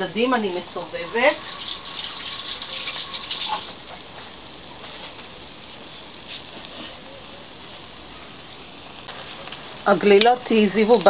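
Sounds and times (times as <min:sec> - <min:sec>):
hot oil sizzling in a pan: 0:00.0 - 0:11.0
oil popping: 0:01.0 - 0:06.9.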